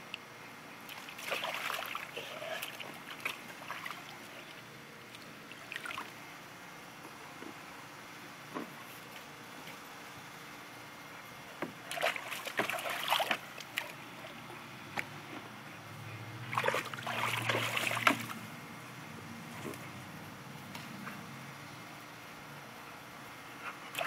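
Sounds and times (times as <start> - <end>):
dog splashing in water: 0.9 - 4.2, 11.9 - 14.0, 16.5 - 18.4.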